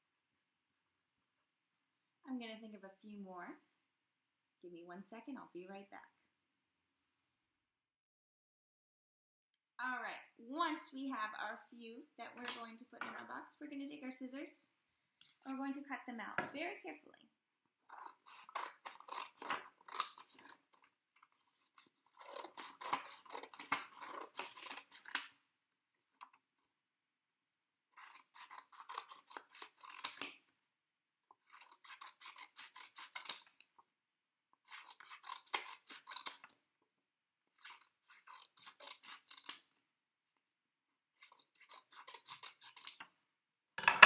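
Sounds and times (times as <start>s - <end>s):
scissors snipping paper: 17.9s - 25.4s, 27.9s - 30.5s, 31.3s - 33.7s, 34.6s - 36.6s, 37.5s - 39.7s, 41.1s - 43.1s.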